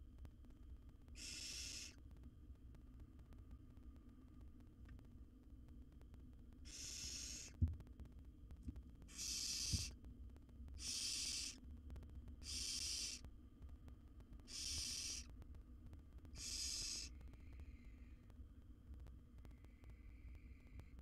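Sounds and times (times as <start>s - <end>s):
owl nestlings hissing calls: 1.2s - 2.0s, 6.6s - 7.6s, 9.1s - 10.0s, 10.8s - 11.6s, 12.4s - 13.2s, 14.5s - 15.3s, 16.3s - 18.2s.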